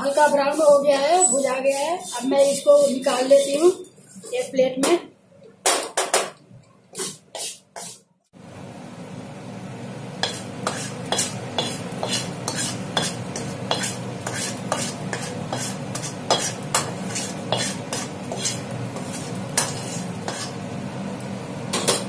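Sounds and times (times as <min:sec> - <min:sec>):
wooden spatula scraping a pan: 0:00.0 - 0:04.6, 0:06.9 - 0:08.0, 0:10.2 - 0:20.6.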